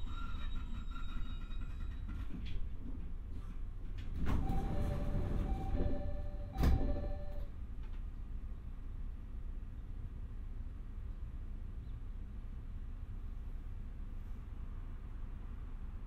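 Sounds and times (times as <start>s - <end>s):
sliding doors closing: 4.0s - 7.5s
two-note door chime: 4.5s - 7.5s
doors thumping shut: 6.6s - 7.0s.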